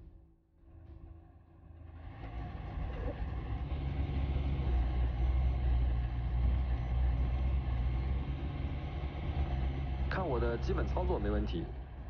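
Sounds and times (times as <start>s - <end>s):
vehicle engine low rumble: 0.0s - 12.0s.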